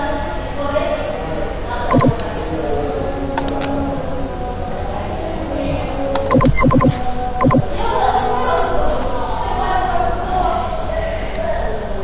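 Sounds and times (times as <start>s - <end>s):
steady background noise: 0.0s - 12.0s
sharp computer clicks: 1.9s - 2.3s, 3.4s - 3.7s, 6.2s - 7.7s.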